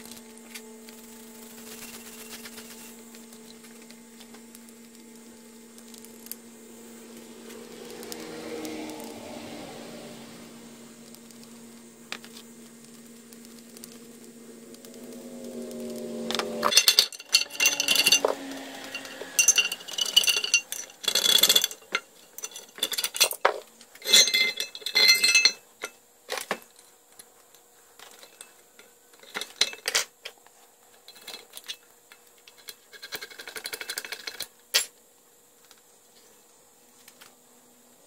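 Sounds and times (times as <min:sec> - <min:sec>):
metal tools clinking and clattering: 0:16.6 - 0:26.6.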